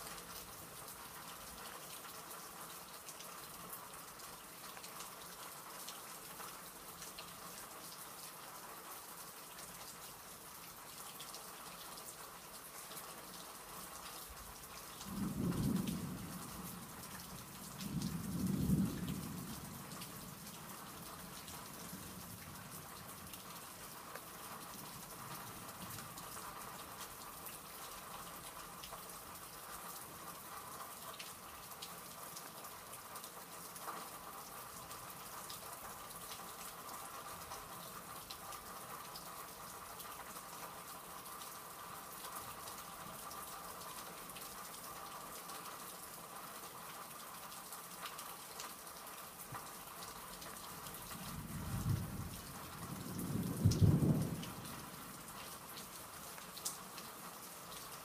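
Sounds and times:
steady rain: 0.0s - 58.0s
thunder rumbling: 51.3s - 55.1s.

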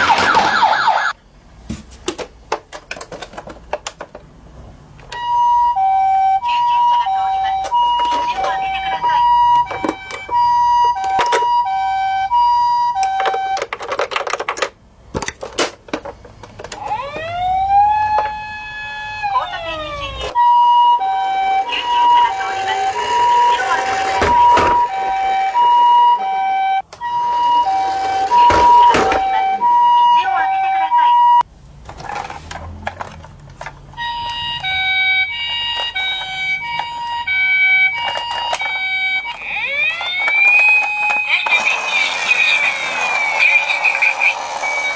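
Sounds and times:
toy siren: 0.0s - 1.2s, 5.1s - 13.7s, 16.7s - 31.4s, 34.0s - 44.9s
plastic toy clicks and rattles: 13.0s - 16.8s, 37.9s - 44.9s.

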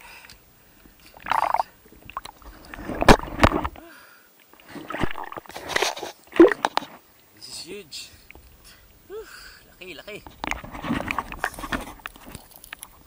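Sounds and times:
water sloshing and splashing: 0.9s - 3.8s, 4.4s - 7.0s, 10.3s - 13.0s.

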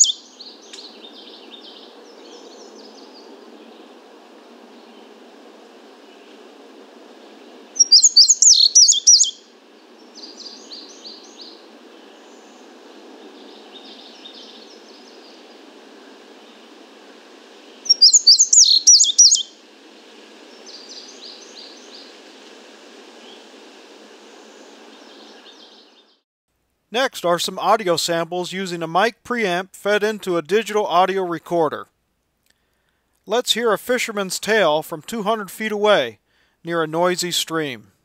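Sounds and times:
bird song phrases: 0.0s - 3.9s, 7.8s - 12.6s, 13.2s - 15.5s, 17.8s - 19.5s, 20.5s - 22.1s, 24.9s - 26.2s
background hiss: 0.0s - 38.0s.

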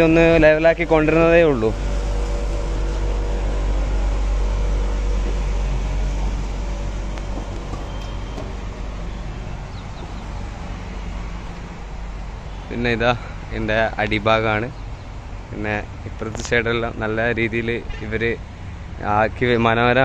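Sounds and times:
hum: 0.0s - 14.1s
low mechanical rumble: 0.0s - 20.0s.

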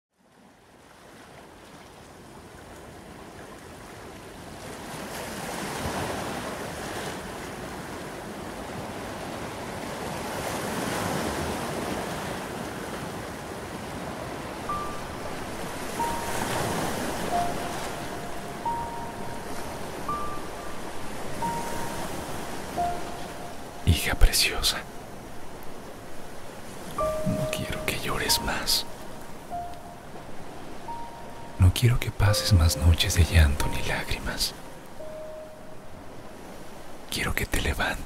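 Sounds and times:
sea waves washing onto beach: 0.7s - 31.6s
held musical notes: 14.7s - 24.2s, 26.8s - 36.2s.

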